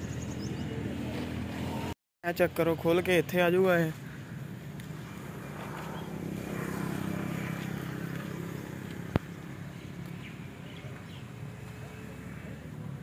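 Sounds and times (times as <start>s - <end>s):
vehicle engine humming: 4.0s - 13.0s.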